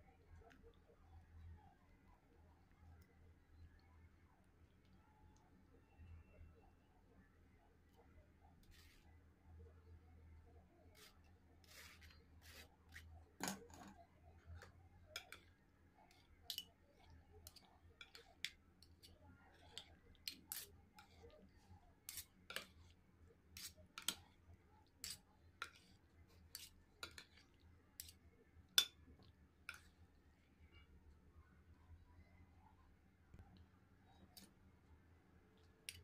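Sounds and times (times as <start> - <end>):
metal spoon scraping a bowl: 16.1 - 21.3, 22.1 - 23.0, 23.6 - 24.2, 25.0 - 27.4.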